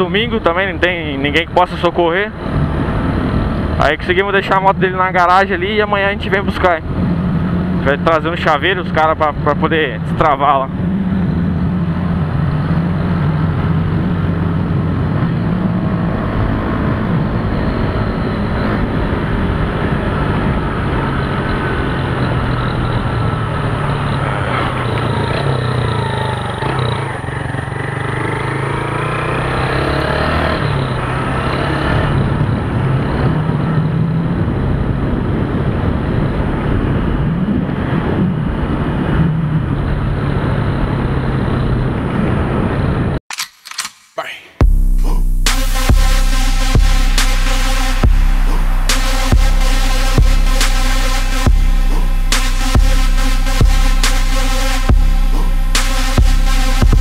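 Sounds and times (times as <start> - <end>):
wind rushing on camera: 0.2 - 7.8, 10.7 - 28.1, 30.6 - 43.2
motorcycle engine running: 19.3 - 29.3, 44.6 - 57.0.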